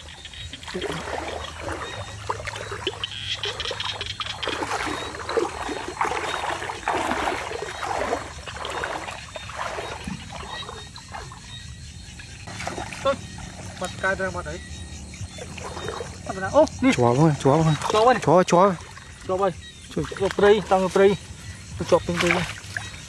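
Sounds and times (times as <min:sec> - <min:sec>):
water sloshing and splashing: 0:00.0 - 0:23.0.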